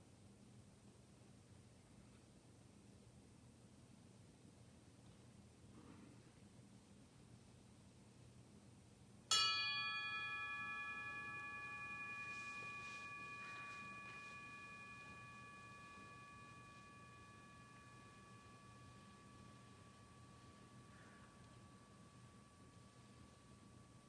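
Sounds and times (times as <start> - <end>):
bell ringing: 9.3 - 24.0.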